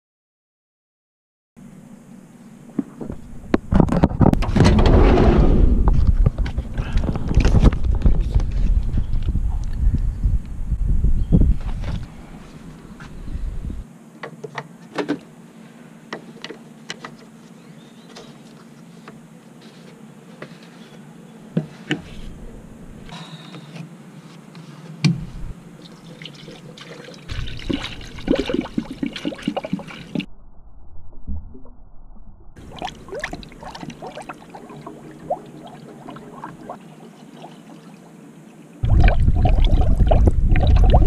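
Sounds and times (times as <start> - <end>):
liquid pouring into funnel: 25.8 - 30.3, 38.8 - 41.0.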